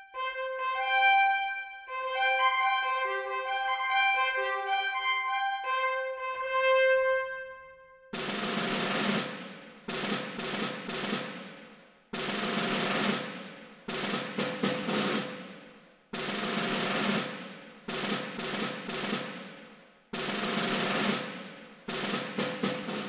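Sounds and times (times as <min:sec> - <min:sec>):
snare drum strokes and rolls: 0:08.2 - 0:23.0.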